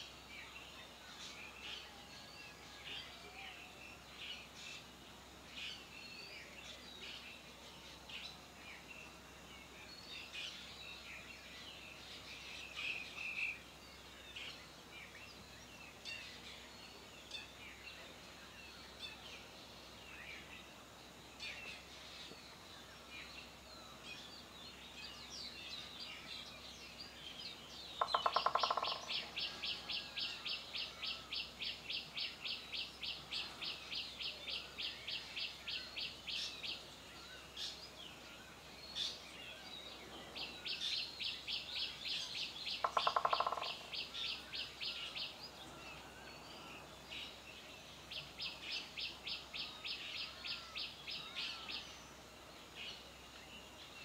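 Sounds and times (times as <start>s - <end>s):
birds chirping rapid high calls: 26.9s - 52.1s.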